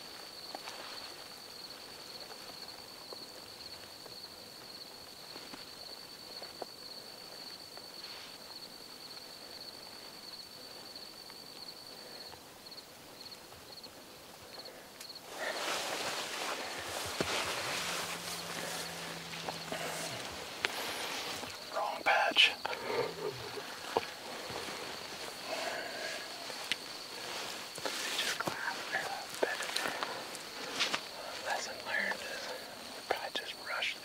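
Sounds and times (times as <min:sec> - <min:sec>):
grassland ambience: 0:00.0 - 0:34.0
insect chirps: 0:00.0 - 0:34.0
rustling: 0:14.5 - 0:21.9, 0:22.8 - 0:33.1
insect trilling: 0:14.5 - 0:34.0.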